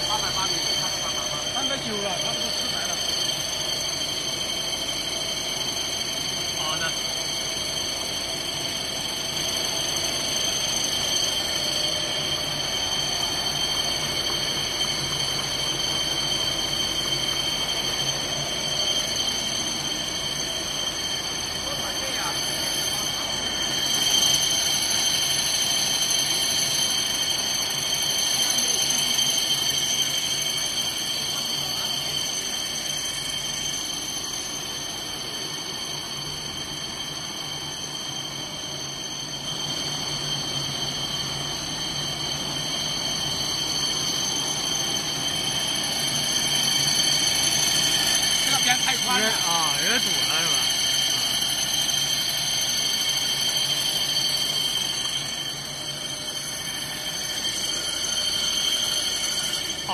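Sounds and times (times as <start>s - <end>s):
high-pitched machine tones: 0.0s - 59.9s
machine running with low hum: 0.0s - 59.9s
paper rewinder machine running: 45.0s - 51.1s.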